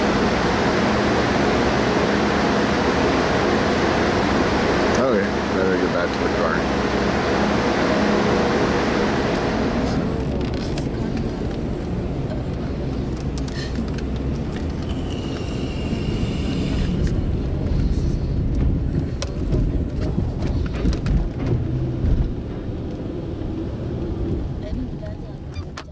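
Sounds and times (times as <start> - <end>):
low steady rumble: 0.0 - 25.9
faint high whine: 14.9 - 17.3.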